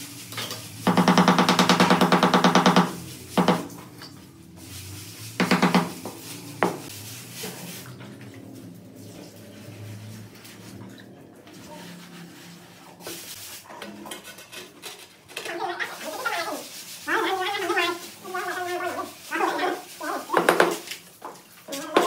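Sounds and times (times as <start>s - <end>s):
hammer tapping ceramic tile: 5.4s - 6.0s.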